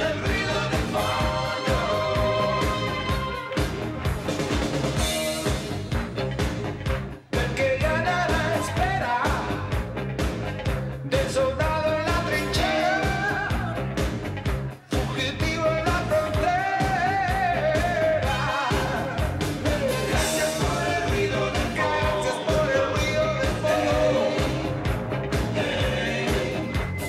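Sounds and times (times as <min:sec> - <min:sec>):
man singing: 0:00.0 - 0:03.3, 0:07.3 - 0:09.7, 0:11.1 - 0:14.0, 0:14.9 - 0:24.9, 0:25.5 - 0:27.0
pop-rock song with band: 0:00.0 - 0:27.0.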